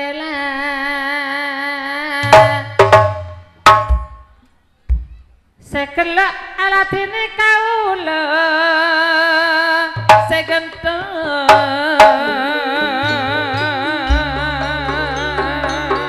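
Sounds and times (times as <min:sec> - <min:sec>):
sharp drum strokes: 0:02.2 - 0:05.2, 0:10.0 - 0:10.6, 0:11.5 - 0:12.5
wavering melody line: 0:11.7 - 0:16.0.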